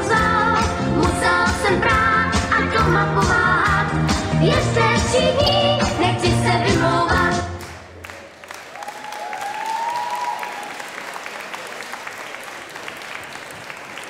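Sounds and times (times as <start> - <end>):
pop song with singing: 0.0 - 7.6
audience applause: 7.6 - 14.0.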